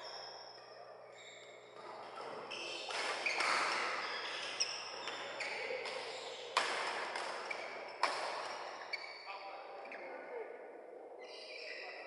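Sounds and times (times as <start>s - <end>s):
shoes squeaking on court: 1.1s - 10.1s
racket hitting shuttlecock: 5.8s - 8.6s.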